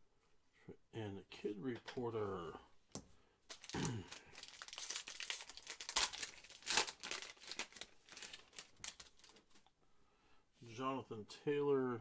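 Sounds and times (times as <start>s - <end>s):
foil wrapper crinkling and tearing: 3.5s - 9.6s.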